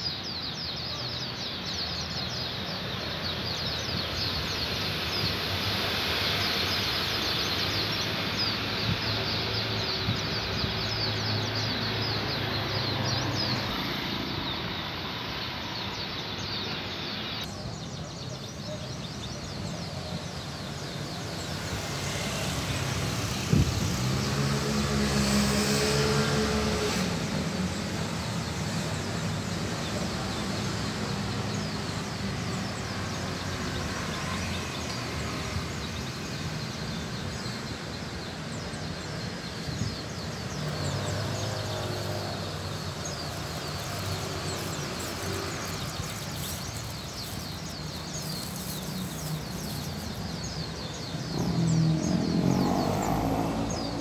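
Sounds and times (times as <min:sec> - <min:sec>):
outdoor background noise: 0:00.0 - 0:54.0
passing vehicle engine hum: 0:21.8 - 0:31.4, 0:39.3 - 0:54.0.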